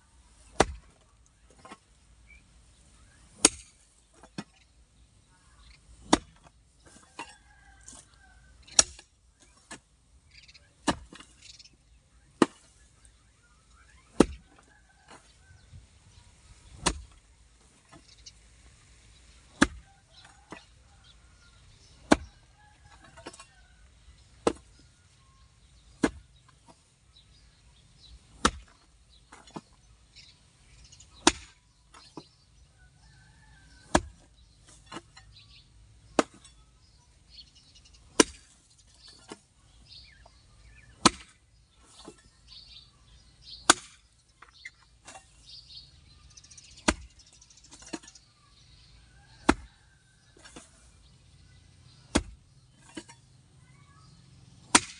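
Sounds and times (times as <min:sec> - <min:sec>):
hoe chopping dry ground: 0:00.3 - 0:15.7, 0:16.4 - 0:54.9
soft knocks and scrapes: 0:49.1 - 0:51.2.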